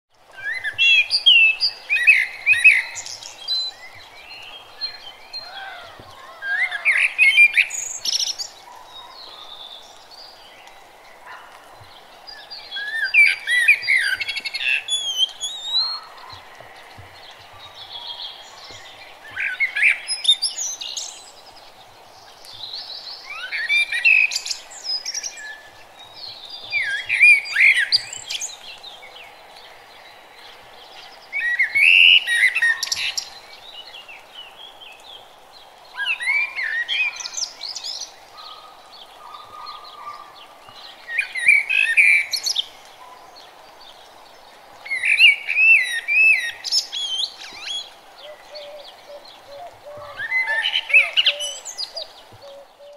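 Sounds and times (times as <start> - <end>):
songbird singing warbled phrases: 12.4 - 16.4, 44.9 - 52.9.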